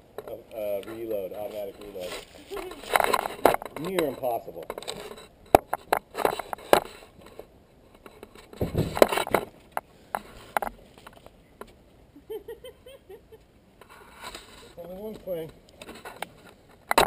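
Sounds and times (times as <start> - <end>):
camera handling knocks and clicks: 8.5 - 9.5.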